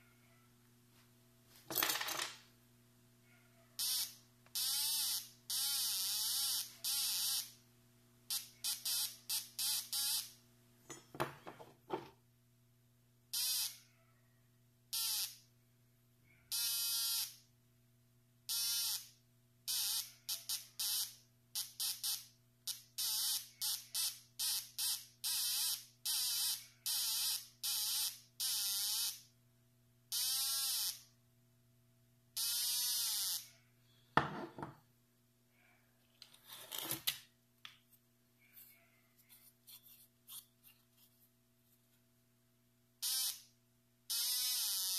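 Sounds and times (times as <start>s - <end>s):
metal detector buzzer beeping: 3.8s - 7.6s, 8.3s - 10.4s, 13.4s - 13.8s, 14.9s - 15.4s, 16.5s - 17.4s, 18.5s - 19.1s, 19.7s - 29.3s, 30.1s - 31.1s, 32.4s - 33.5s, 43.0s - 43.5s, 44.1s - 44.9s.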